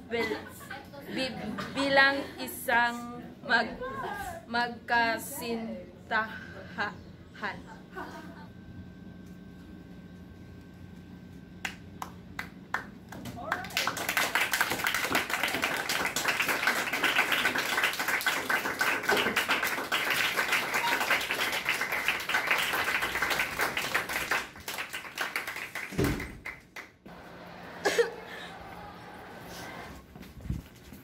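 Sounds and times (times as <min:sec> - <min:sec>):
crowd applauding: 0:11.6 - 0:27.0.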